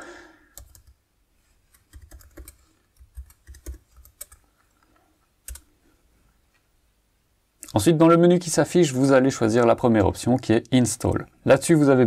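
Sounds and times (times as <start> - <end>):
typing on computer keyboard: 0.5 - 1.0, 1.7 - 4.4, 5.4 - 5.7.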